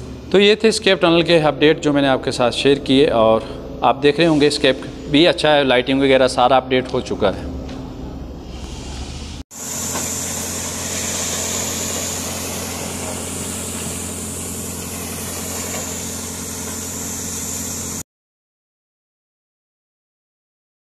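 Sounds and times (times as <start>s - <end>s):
steady high hiss: 0.0s - 7.2s, 8.4s - 18.0s
excavator diesel engine running: 9.6s - 18.0s.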